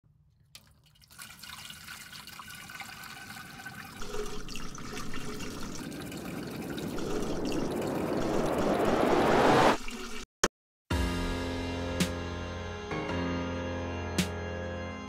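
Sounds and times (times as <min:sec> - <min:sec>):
water pouring into plastic funnel: 0:00.5 - 0:08.6, 0:09.8 - 0:10.2.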